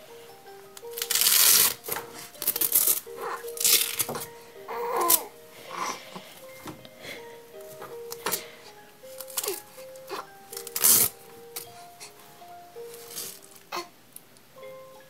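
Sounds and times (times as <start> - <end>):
soft background music: 0.0 - 15.0
hook-and-loop tabs ripping open: 0.8 - 4.2, 10.5 - 11.7
fabric rustling: 9.0 - 13.7.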